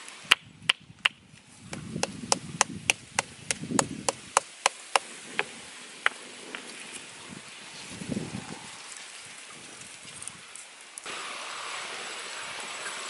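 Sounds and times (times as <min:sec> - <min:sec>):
light handling rustle: 0:05.3 - 0:11.1.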